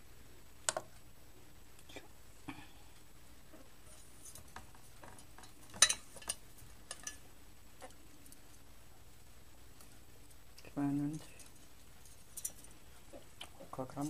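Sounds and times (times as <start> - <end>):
claws scrabbling on enamel: 3.8 - 8.7, 9.7 - 14.0.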